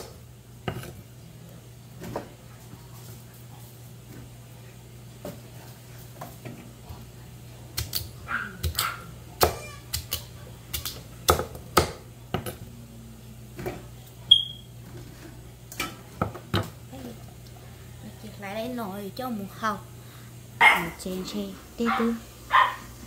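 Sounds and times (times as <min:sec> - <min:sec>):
knife chopping on wooden board: 0:10.8 - 0:12.6.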